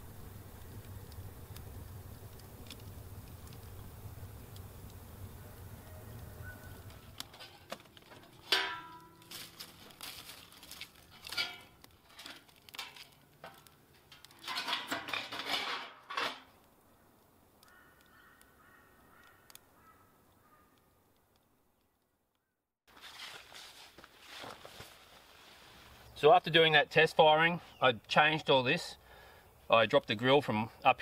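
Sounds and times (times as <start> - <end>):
wood fire popping: 0.0 - 20.5
birds calling: 5.3 - 7.2, 16.9 - 21.0.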